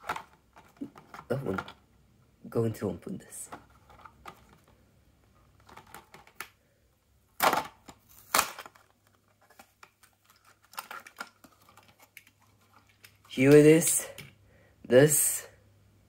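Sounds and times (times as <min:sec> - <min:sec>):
quiet clicks and rustles: 0:03.4 - 0:06.6, 0:08.6 - 0:14.4
cardboard tearing: 0:07.4 - 0:12.2
plastic blister crackling: 0:07.4 - 0:13.6.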